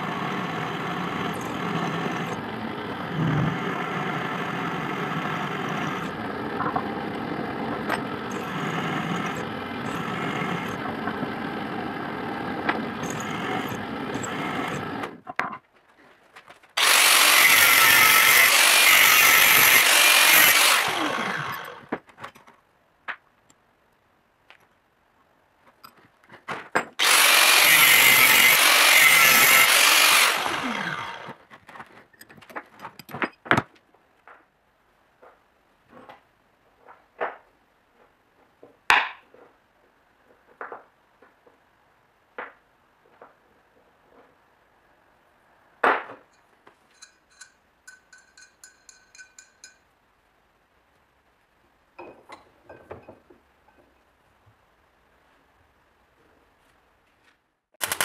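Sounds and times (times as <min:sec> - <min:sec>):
angle grinder grinding steel: 0:00.0 - 0:15.2, 0:16.8 - 0:21.9, 0:27.0 - 0:31.4
drill press boring steel: 0:00.0 - 0:15.2, 0:16.8 - 0:21.9, 0:27.0 - 0:31.4, 0:57.8 - 0:58.0.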